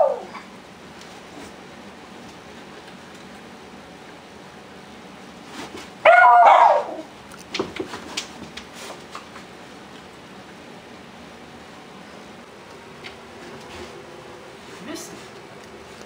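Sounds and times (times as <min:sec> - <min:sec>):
dog barking: 0:00.0 - 0:00.3, 0:06.0 - 0:07.1.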